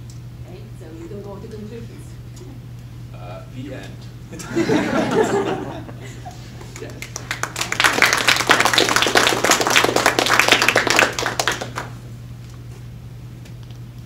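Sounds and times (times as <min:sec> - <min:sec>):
audience applauding: 0:06.6 - 0:12.0.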